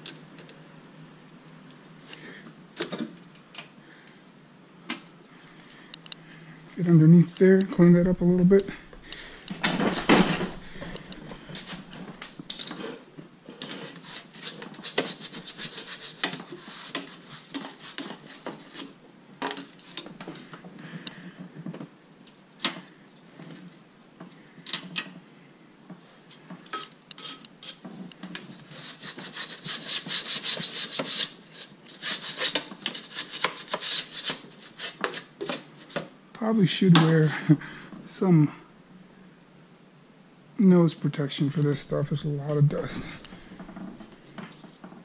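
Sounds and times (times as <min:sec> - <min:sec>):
scratchy scrubbing strokes: 0:12.8 - 0:19.0, 0:28.5 - 0:35.6.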